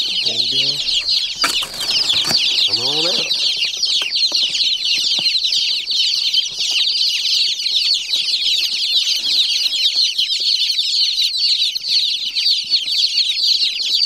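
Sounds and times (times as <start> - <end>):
baby chicks peeping: 0.0 - 14.0
rustles in cardboard box: 1.0 - 3.8.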